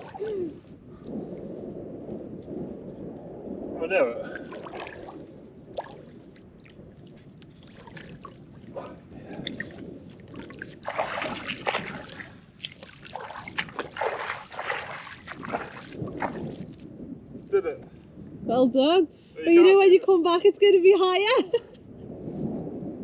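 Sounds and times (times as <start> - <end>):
footsteps splashing in water: 4.5 - 8.7, 9.4 - 16.8.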